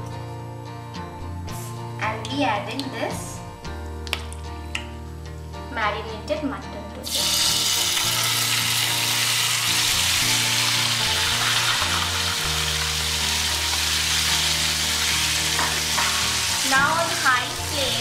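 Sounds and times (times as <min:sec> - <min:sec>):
meat sizzling in hot oil: 0:07.0 - 0:18.0.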